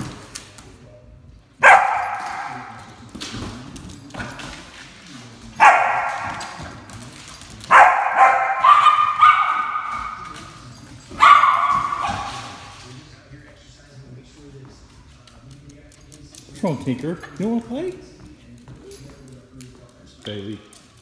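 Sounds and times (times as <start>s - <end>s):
dog barking: 1.6s - 2.7s, 5.6s - 6.6s, 7.7s - 10.3s, 11.1s - 12.7s.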